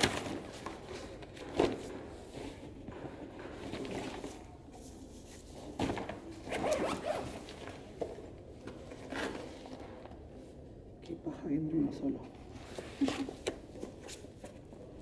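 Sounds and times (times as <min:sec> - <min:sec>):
zipper being pulled: 0:06.5 - 0:07.4.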